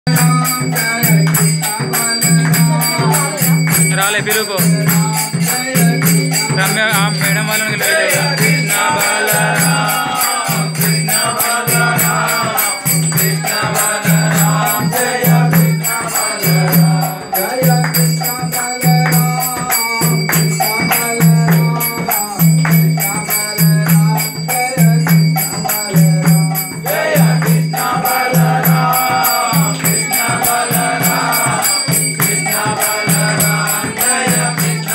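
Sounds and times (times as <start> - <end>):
deep drum beat: 0.1 - 17.1
metallic jingle: 0.1 - 34.9
voices chanting and singing: 0.1 - 34.9.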